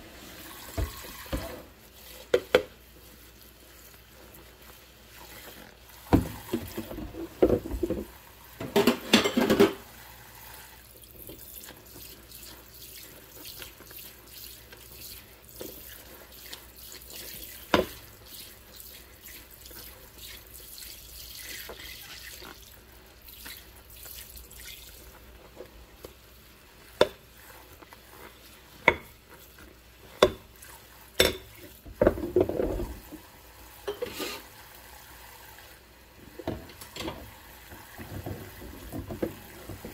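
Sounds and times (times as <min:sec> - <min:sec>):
tap running: 0:00.7 - 0:01.7, 0:06.0 - 0:09.8, 0:36.4 - 0:39.9
scrubbing a plate: 0:11.2 - 0:33.2.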